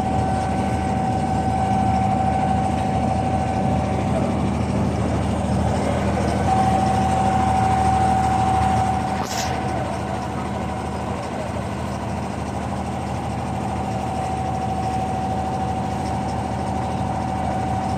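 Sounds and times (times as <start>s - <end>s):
boat diesel engine droning: 0.0s - 17.9s.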